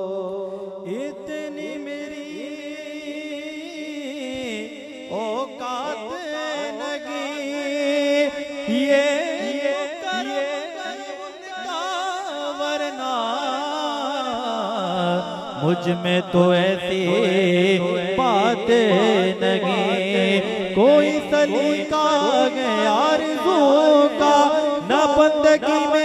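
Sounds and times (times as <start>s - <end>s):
man singing into a microphone: 0.0s - 26.0s.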